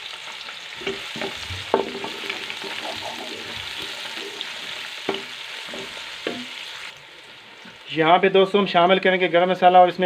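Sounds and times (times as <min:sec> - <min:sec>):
onions sizzling in a pot: 0:00.0 - 0:10.0
wooden spatula scraping a pot: 0:00.8 - 0:06.7.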